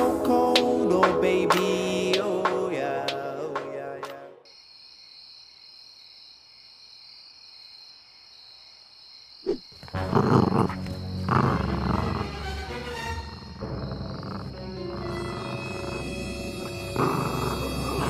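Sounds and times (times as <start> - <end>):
song playing: 0.0 - 3.8
crickets chirring: 4.4 - 18.0
hyena growling: 9.5 - 12.7, 13.3 - 18.0.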